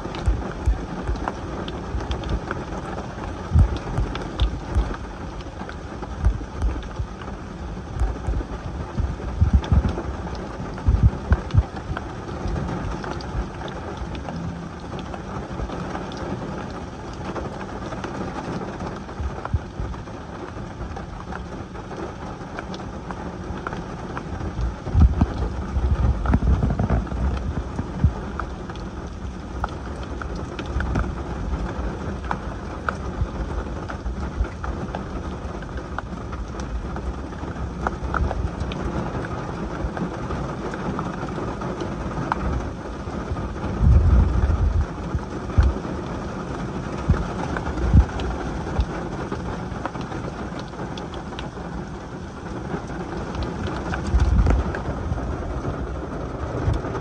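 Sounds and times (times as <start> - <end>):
low rumbles: 0.0 - 40.1, 42.0 - 57.0
heavy rain on a car: 0.0 - 57.0.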